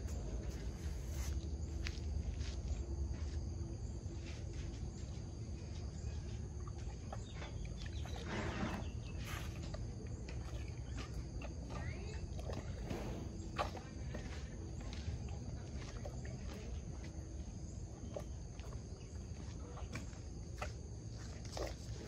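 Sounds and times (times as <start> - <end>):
elephant chewing and crunching food: 0.0 - 1.6, 5.3 - 22.0.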